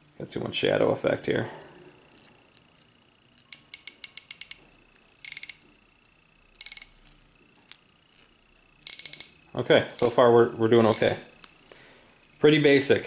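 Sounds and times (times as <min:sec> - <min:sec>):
ratchet clicking: 0:03.4 - 0:04.6, 0:05.2 - 0:05.6, 0:06.5 - 0:07.0, 0:08.8 - 0:10.2, 0:10.9 - 0:11.3.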